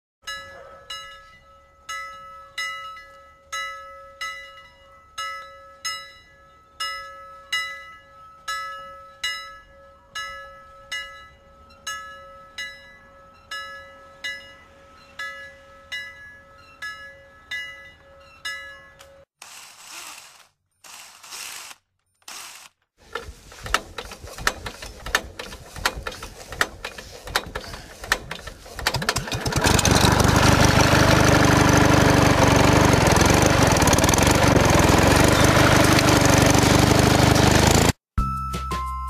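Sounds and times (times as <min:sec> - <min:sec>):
bell-like chimes melody: 0:00.2 - 0:19.3.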